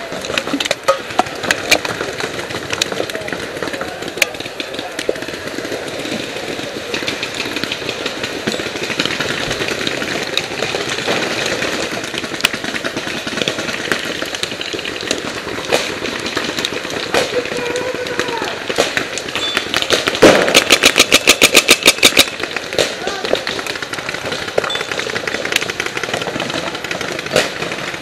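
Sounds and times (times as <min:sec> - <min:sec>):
paintball markers firing: 0:00.0 - 0:28.0.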